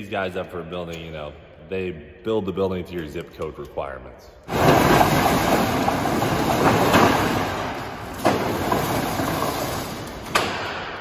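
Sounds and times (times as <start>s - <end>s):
steel roll-up door rattling: 4.5s - 11.0s.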